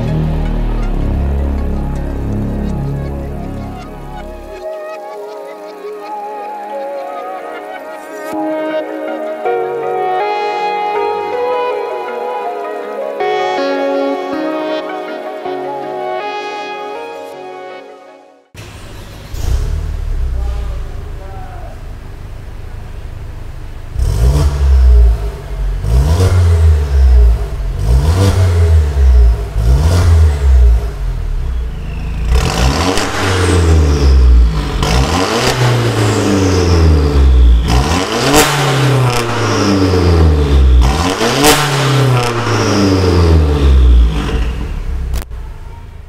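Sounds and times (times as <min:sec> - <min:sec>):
exhaust crack: 0:00.0 - 0:06.4, 0:18.6 - 0:46.0
car engine revving: 0:00.0 - 0:08.5, 0:18.6 - 0:46.0.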